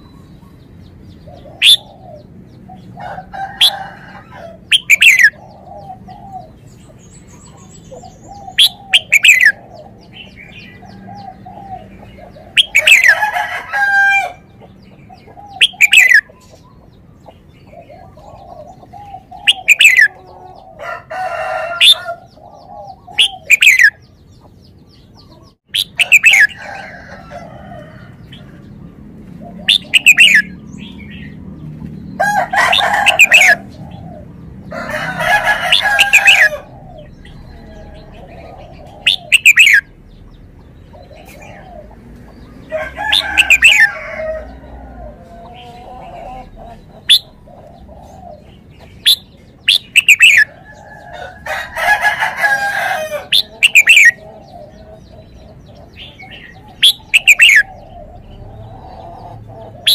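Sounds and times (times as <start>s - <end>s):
softer warbling bird calls: 1.5s - 2.0s, 4.7s - 5.7s, 7.3s - 9.6s, 15.5s - 16.4s, 18.5s - 20.3s, 23.0s - 24.0s, 25.7s - 26.6s, 29.6s - 30.5s, 38.2s - 40.0s, 49.0s - 50.5s, 53.3s - 54.5s, 56.3s - 58.1s.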